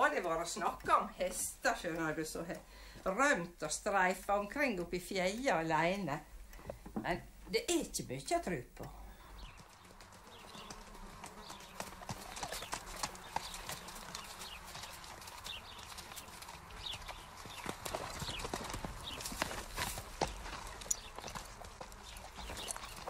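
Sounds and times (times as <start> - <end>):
horse hooves clip-clopping: 0.0 - 4.0, 8.8 - 23.0.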